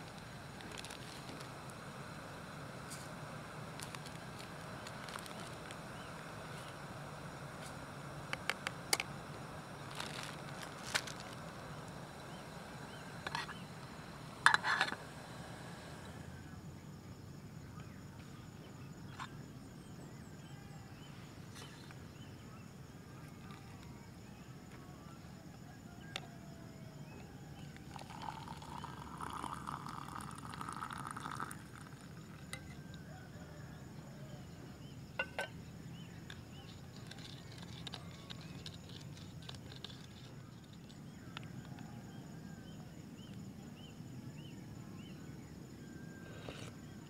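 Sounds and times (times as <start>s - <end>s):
hot water pouring into a mug: 0.0s - 1.5s, 27.8s - 32.7s.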